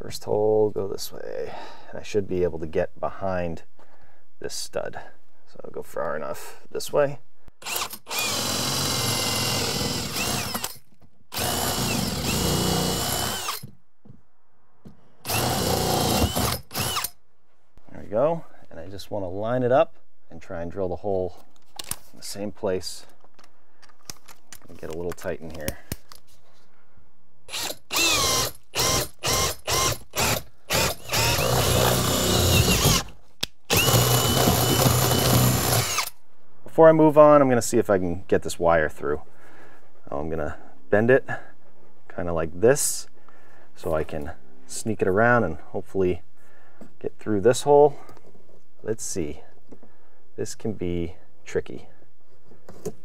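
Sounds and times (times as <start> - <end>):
cordless drill boring wood: 7.6 - 13.7, 15.2 - 17.2, 27.5 - 36.2.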